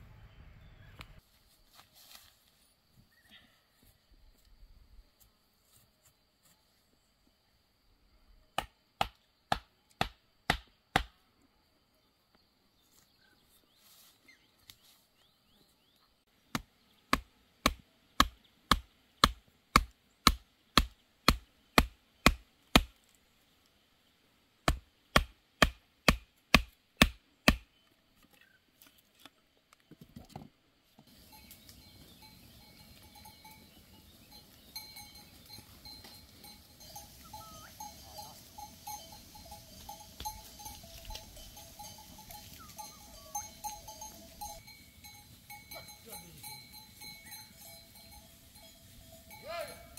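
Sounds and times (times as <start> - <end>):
sheep and goats grazing: 0.0 - 7.1, 12.6 - 23.8, 30.7 - 49.9
hatchet pounding wooden stake: 8.6 - 11.2, 16.5 - 22.9, 24.6 - 27.7
small bells ringing: 31.1 - 49.9.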